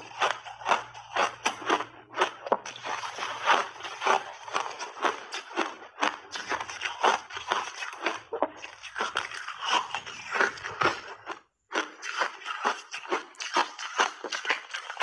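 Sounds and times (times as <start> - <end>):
ice crunching: 0.0 - 5.7.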